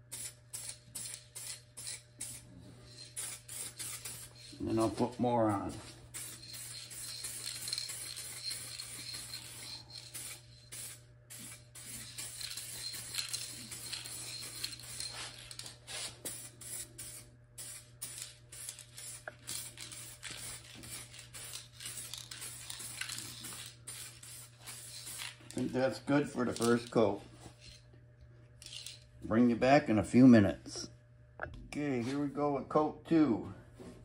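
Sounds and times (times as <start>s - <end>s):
aerosol spray can hissing: 0.1s - 4.6s, 6.1s - 15.3s, 15.9s - 25.4s.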